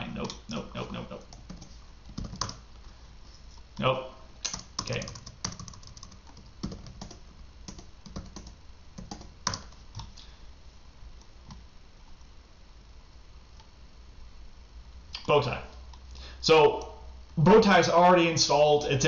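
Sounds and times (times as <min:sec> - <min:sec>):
keyboard typing: 0:00.2 - 0:02.6, 0:04.4 - 0:10.2.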